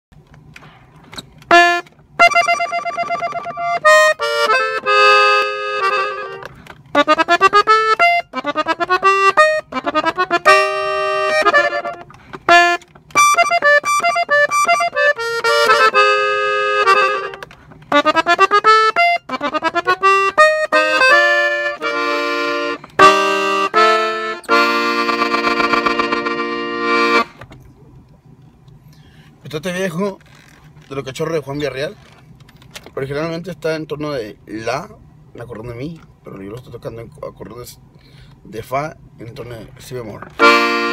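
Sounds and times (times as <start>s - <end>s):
button accordion playing: 1.4s - 27.4s, 40.4s - 40.9s.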